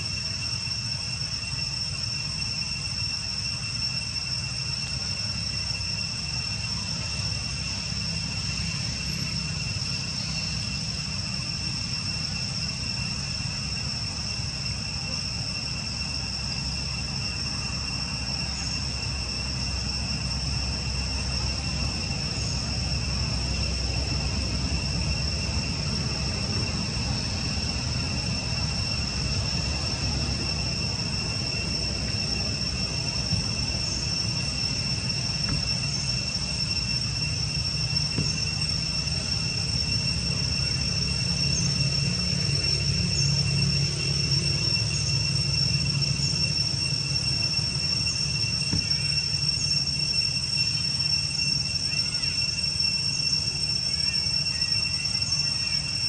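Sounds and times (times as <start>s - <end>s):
insects droning whine: 0.0s - 56.0s.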